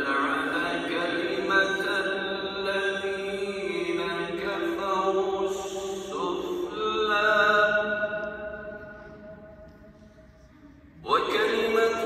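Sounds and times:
person chanting recitation: 0.0 - 12.0.

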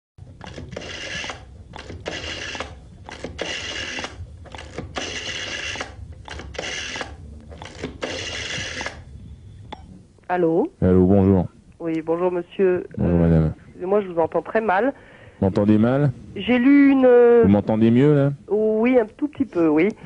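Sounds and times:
rotary telephone dial whirring: 0.2 - 9.1
small dial clicks: 0.4 - 9.1.

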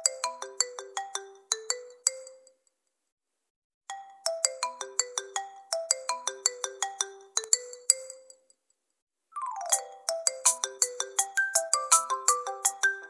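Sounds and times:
phone ringtone chiming melody: 0.0 - 2.4, 3.9 - 8.3, 9.4 - 13.0.

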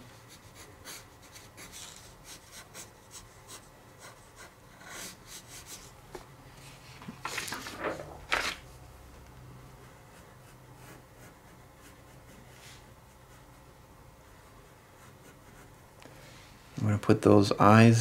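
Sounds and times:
pencil sketching on paper: 0.1 - 5.9, 9.8 - 15.9.

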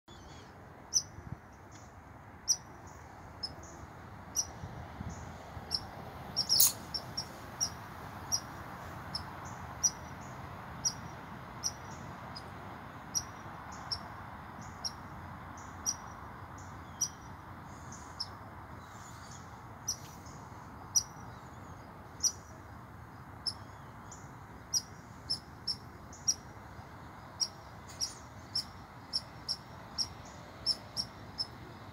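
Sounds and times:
squirrel barking calls: 4.3 - 8.5, 9.1 - 12.5, 13.1 - 15.0, 15.6 - 17.2, 24.7 - 26.5, 27.4 - 31.7.

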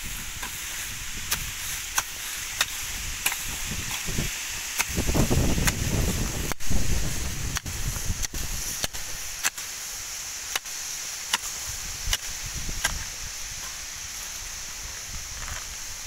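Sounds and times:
hoe crunching into soil: 0.0 - 9.8.

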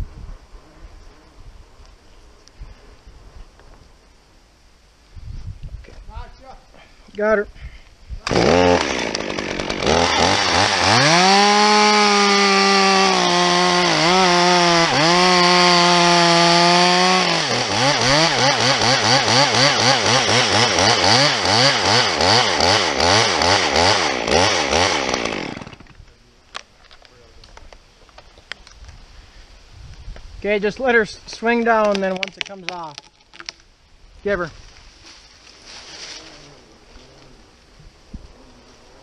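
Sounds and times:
chainsaw cutting wood: 8.2 - 26.1.

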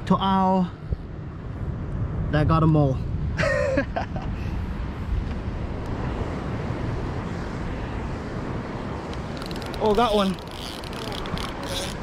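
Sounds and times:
wind noise on microphone: 0.0 - 12.0
ocean surf: 3.1 - 12.0.

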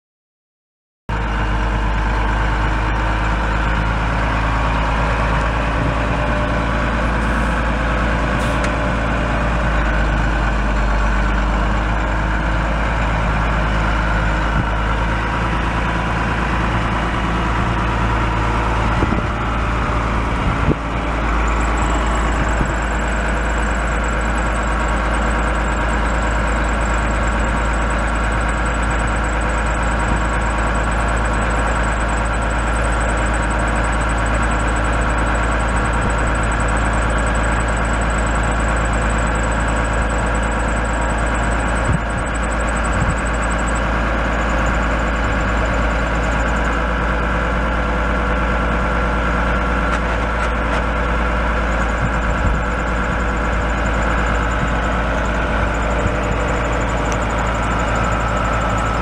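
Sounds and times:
diesel truck idling: 1.1 - 59.0.

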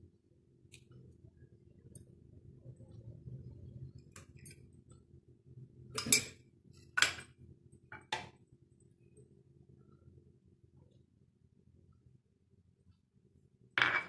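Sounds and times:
faint low hum: 0.0 - 14.0
glass bowls clinking: 6.0 - 6.4.

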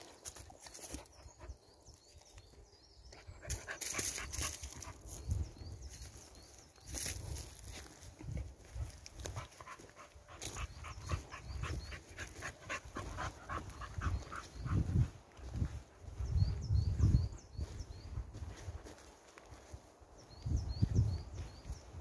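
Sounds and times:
dog panting: 9.3 - 15.1.

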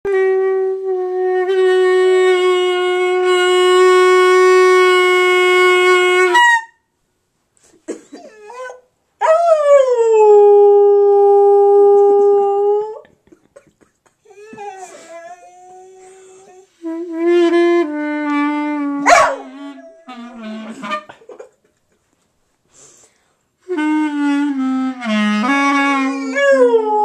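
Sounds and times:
clarinet note: 0.1 - 6.8, 14.6 - 21.1, 23.6 - 27.0
dog whining: 8.2 - 8.9, 14.2 - 16.7, 19.0 - 21.0, 26.0 - 27.0.

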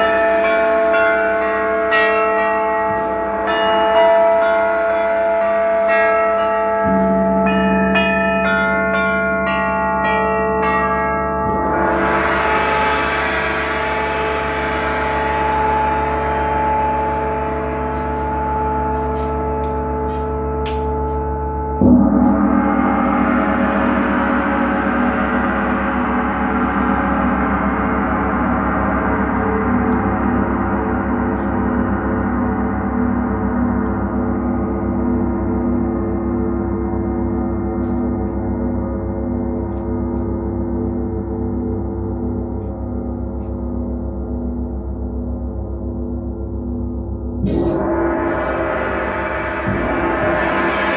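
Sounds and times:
gong ringing: 0.0 - 50.9.

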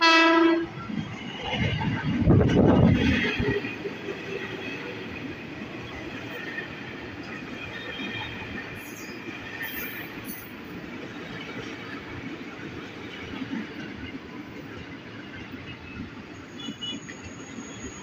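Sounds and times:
electric train rumbling past: 0.0 - 18.0
high wheel squeal: 16.3 - 18.0.

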